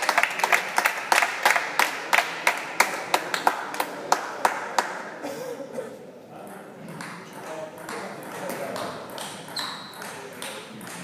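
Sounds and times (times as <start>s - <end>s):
hands clapping: 0.0s - 5.0s.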